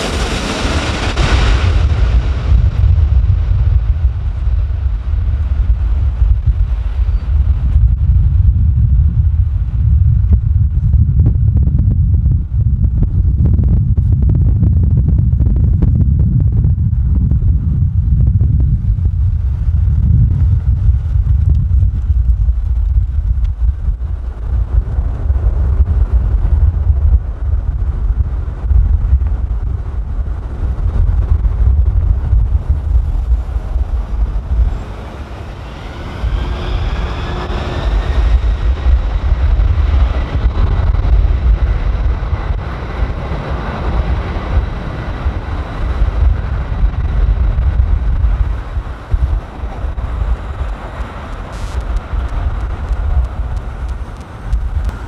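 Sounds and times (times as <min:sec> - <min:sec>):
jet engine whine: 0:00.0 - 0:55.0
wind on microphone: 0:00.0 - 0:55.0
passing road traffic: 0:32.6 - 0:55.0.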